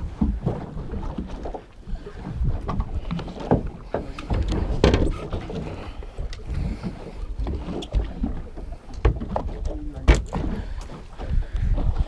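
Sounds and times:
wind buffeting microphone: 0.0s - 12.0s
knocks and thumps: 3.4s - 5.6s.

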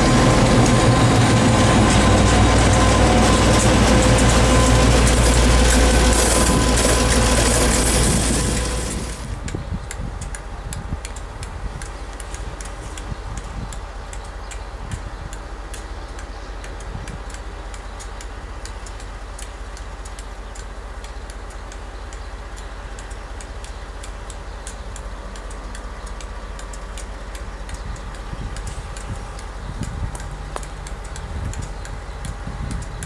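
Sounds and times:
diesel locomotive rumbling: 0.0s - 33.0s
sharp irregular ticks: 0.2s - 33.0s.

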